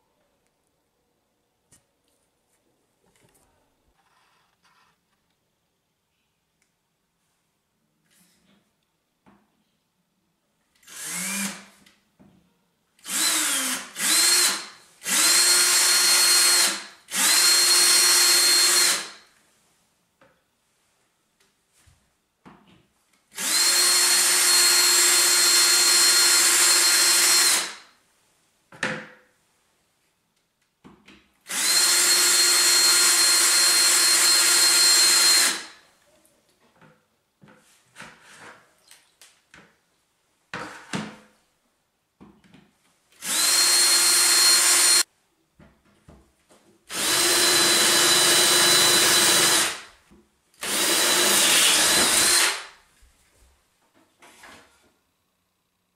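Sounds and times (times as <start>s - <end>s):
drill whining into tile: 10.8s - 11.7s, 13.0s - 19.3s, 23.4s - 28.0s, 31.5s - 35.8s, 43.2s - 45.0s, 46.9s - 49.9s, 50.6s - 52.8s.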